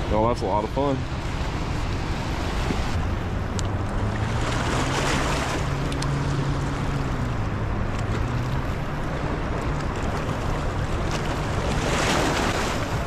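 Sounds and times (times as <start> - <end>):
floodwater rushing: 0.0 - 13.0
low hum: 0.0 - 13.0.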